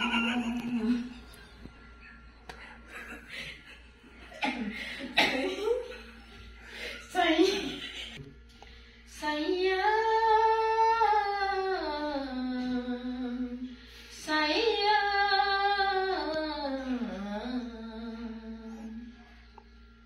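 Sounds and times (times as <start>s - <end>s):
person humming slow tune: 0.0s - 1.3s, 14.5s - 19.4s.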